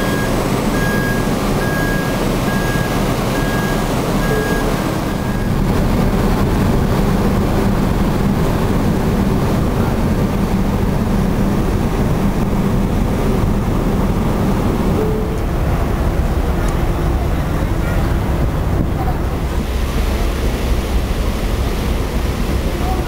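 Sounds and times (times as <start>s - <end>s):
short electronic beeps: 0.0s - 5.6s
ferry engines rumbling: 0.0s - 23.0s.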